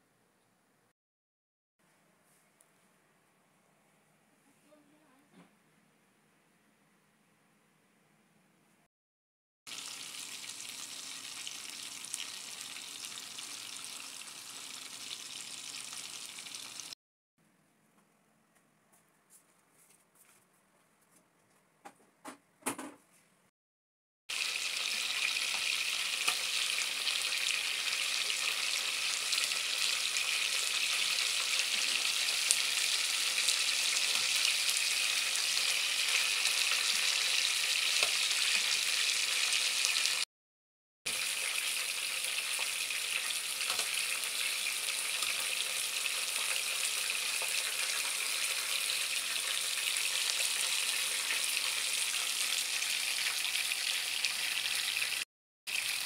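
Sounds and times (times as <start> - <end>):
chicken sizzling in hot oil: 9.7 - 17.0, 24.3 - 40.3, 41.1 - 56.0.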